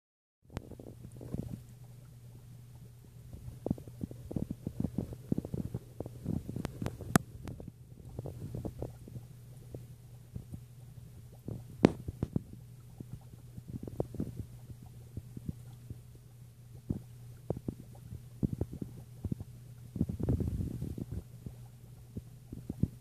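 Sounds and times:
steady low hum: 0.5 - 23.0.

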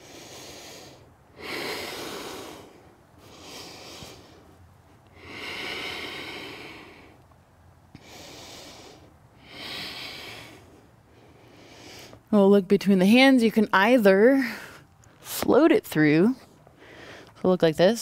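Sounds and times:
woman breathing slowly: 0.0 - 12.3, 14.4 - 15.2, 16.6 - 17.4.

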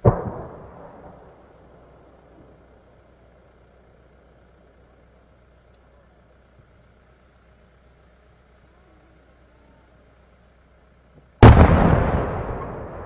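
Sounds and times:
firework bang with echo: 0.0 - 1.3, 11.4 - 13.0.

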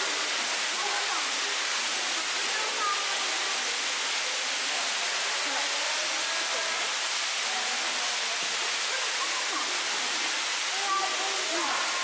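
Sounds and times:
faint voices: 0.0 - 12.0
falling water rushing: 0.0 - 12.0.

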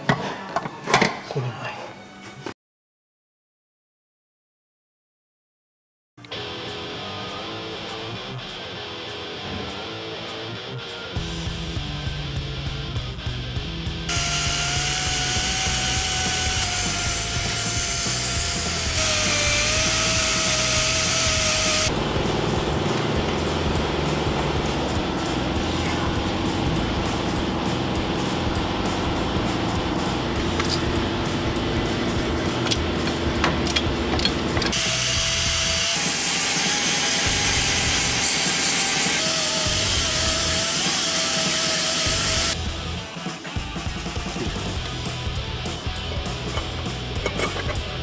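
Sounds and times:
belt sander grinding metal: 14.1 - 42.6.

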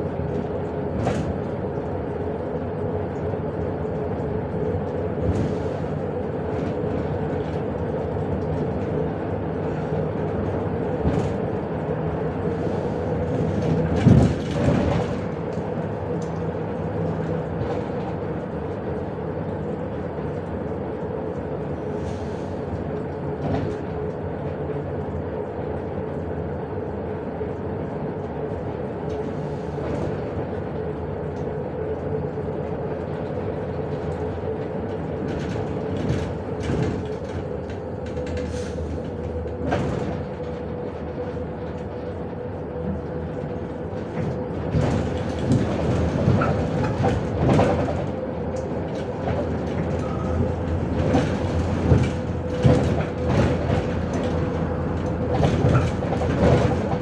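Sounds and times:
bus engine and road noise: 0.0 - 57.0
constant whine: 22.6 - 57.0
rattles and knocks: 49.2 - 57.0.

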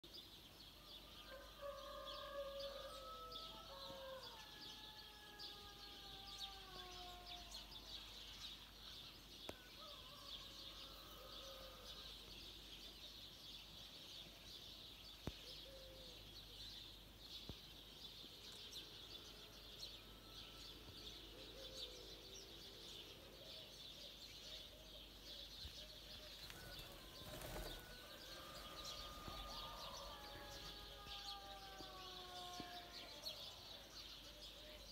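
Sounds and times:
distant birds chirping: 14.8 - 34.4.

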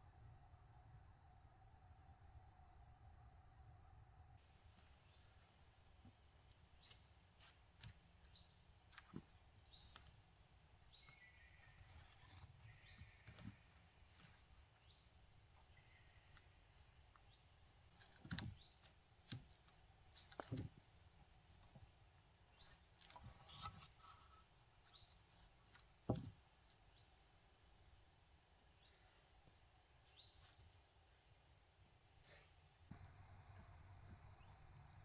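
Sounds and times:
wooden thumps: 20.2 - 20.9, 25.8 - 26.5.

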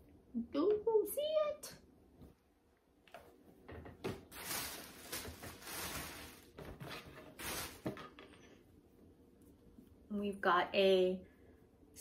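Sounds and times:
clothes rustling: 3.1 - 8.2
plastic bag crinkling: 4.2 - 8.1.

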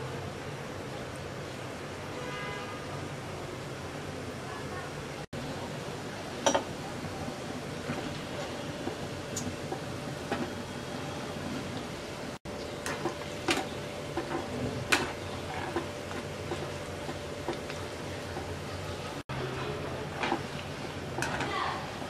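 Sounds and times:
hot oil sizzling and crackling: 5.0 - 22.0.

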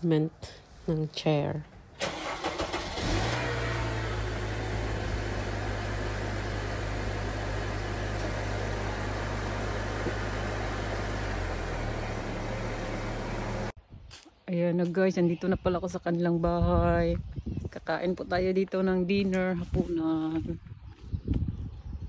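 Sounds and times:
car engine starting and idling: 2.0 - 13.8.

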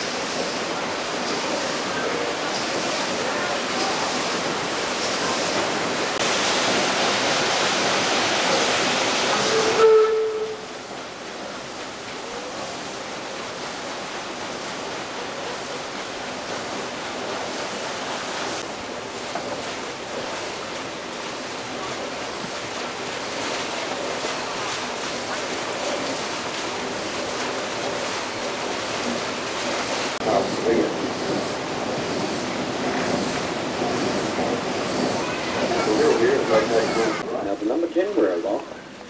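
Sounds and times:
rushing churning water: 0.0 - 39.0
brief tone: 9.6 - 10.6.

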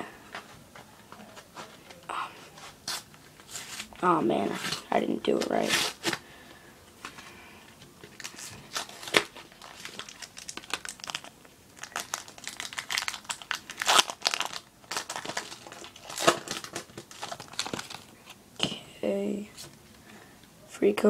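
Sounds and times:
foil wrapper rustling and tearing: 8.2 - 18.1.

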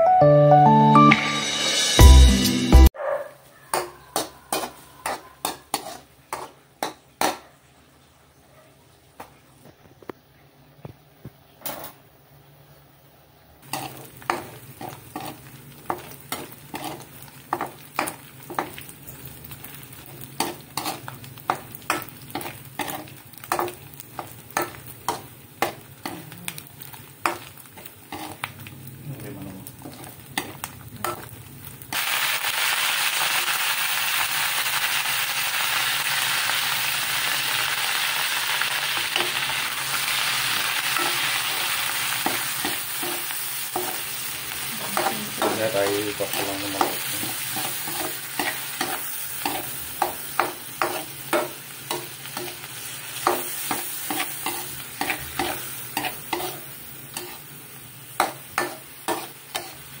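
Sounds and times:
spoon scraping and knocking pan: 3.7 - 7.5, 13.6 - 18.9, 20.1 - 26.3, 27.2 - 28.5, 40.9 - 44.1, 44.9 - 57.4, 58.2 - 59.8
meat sizzling in a pan: 13.6 - 60.0.

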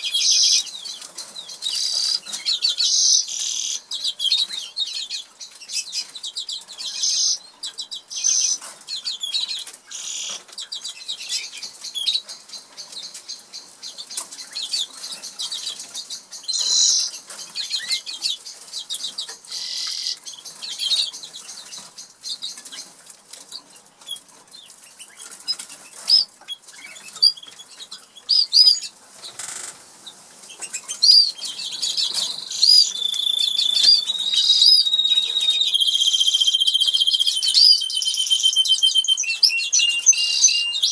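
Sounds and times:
canary singing: 0.0 - 23.0, 24.0 - 40.9
high bird chirps: 30.5 - 40.9
birds pecking clicks: 31.5 - 38.6.

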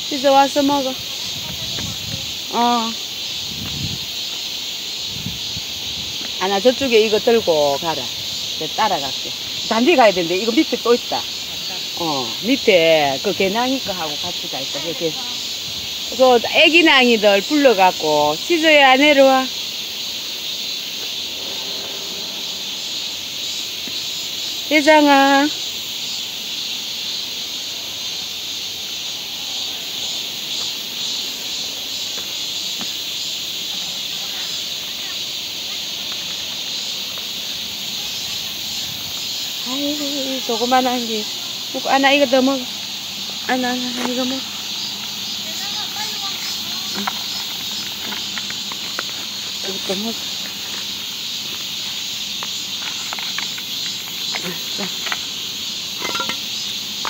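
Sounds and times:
insects hissing chorus: 0.0 - 57.0.

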